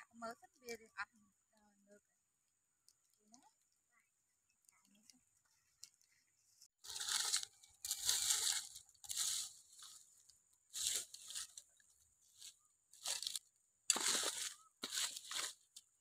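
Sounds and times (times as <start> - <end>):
stick scraping through ash: 6.8 - 10.0, 10.7 - 11.6, 12.3 - 15.9.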